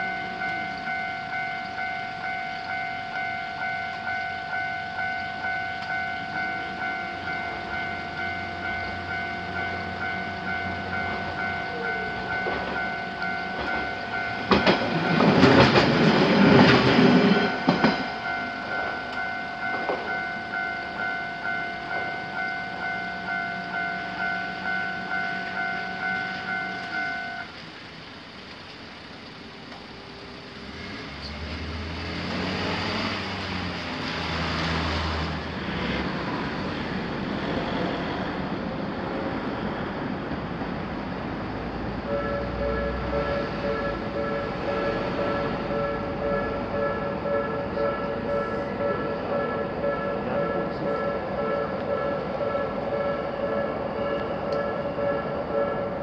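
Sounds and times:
lower-pitched crossing alarm: 0.0s - 27.6s, 41.6s - 56.0s
railroad crossing bell ringing: 0.0s - 27.6s, 40.0s - 56.0s
vehicle passing: 30.6s - 38.5s.

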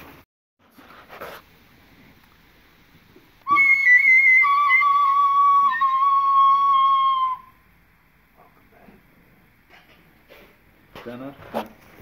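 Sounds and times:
tin whistle long high note: 3.4s - 7.6s.

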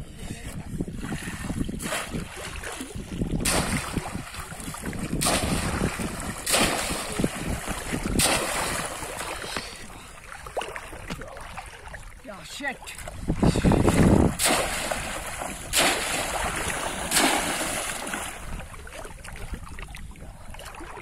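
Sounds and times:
hand sloshing in water: 1.1s - 12.2s, 13.0s - 21.0s
fish trap splashing into water: 1.8s - 9.8s, 13.9s - 18.6s.

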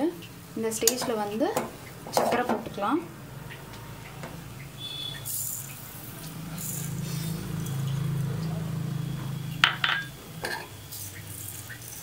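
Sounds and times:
glass clinks: 9.6s - 10.7s.

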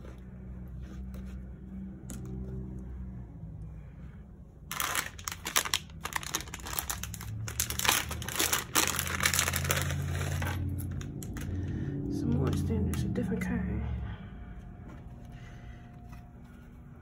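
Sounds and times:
plastic wrapper crinkling: 4.7s - 11.5s.

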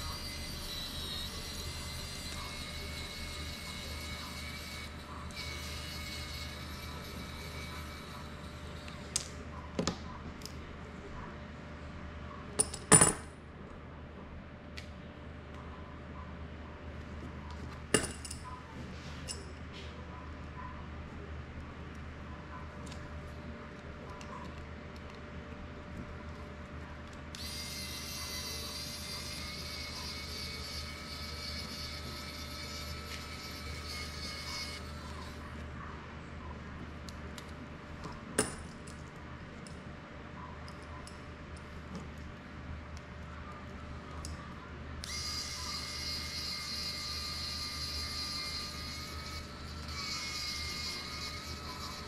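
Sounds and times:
metal tools clinking on table: 12.6s - 13.3s, 17.9s - 18.5s.

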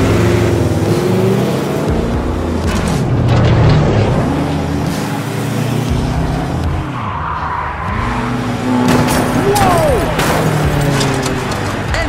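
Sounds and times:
race car engine drone: 0.0s - 12.0s
tire screech: 2.2s - 12.0s.

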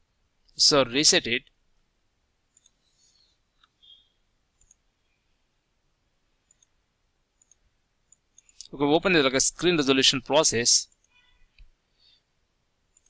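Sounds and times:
faint computer mouse clicks: 2.5s - 2.9s, 4.6s - 4.8s, 6.5s - 6.8s, 7.4s - 8.7s.

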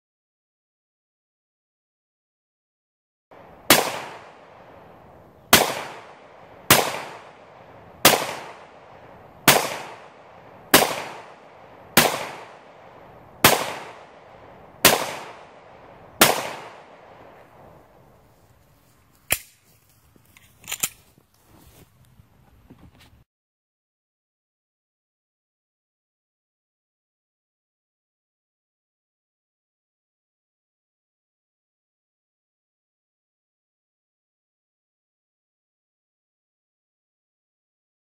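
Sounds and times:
gunshots with echo: 3.6s - 4.8s, 5.5s - 17.4s.

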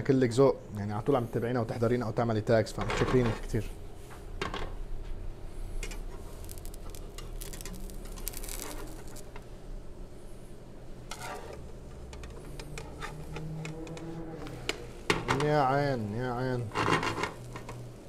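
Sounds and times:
low hum: 5.2s - 18.0s
metal spatula scraping frying pan: 11.1s - 11.6s.

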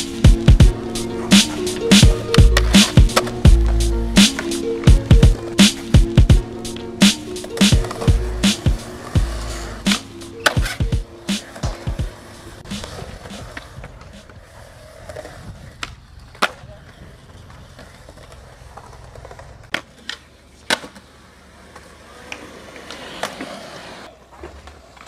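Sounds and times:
skateboard wheels rolling: 0.0s - 25.0s
skateboard clacking on ground: 0.6s - 25.0s.

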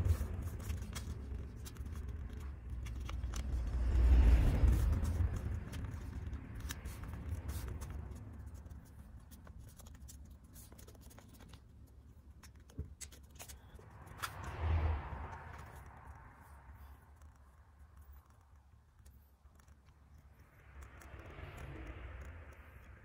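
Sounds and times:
paper rustling and crackling: 0.0s - 16.2s.

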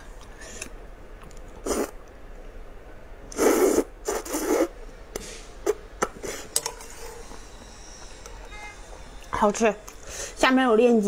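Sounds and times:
person slurping noodles: 1.6s - 2.0s, 3.3s - 4.8s.

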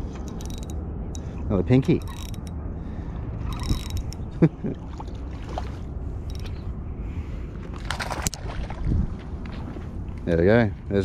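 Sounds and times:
wind rumbling on microphone: 0.0s - 11.0s
fishing gear rattles: 0.1s - 0.8s, 1.9s - 2.5s, 3.4s - 4.2s, 6.3s - 6.6s
water lapping: 4.5s - 6.6s, 7.2s - 9.2s
water splashes: 4.6s - 6.0s, 7.7s - 9.1s.

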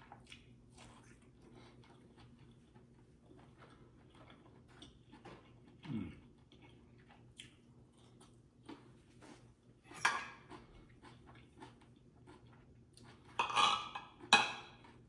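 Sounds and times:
chewing noises: 0.0s - 9.5s, 10.3s - 13.4s
knife and fork scraping plate: 13.4s - 14.5s.

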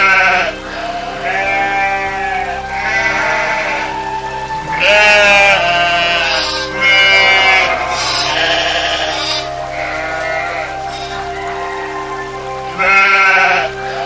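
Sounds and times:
sheep bleating: 0.0s - 4.0s, 4.7s - 11.2s
background music: 0.0s - 14.0s.

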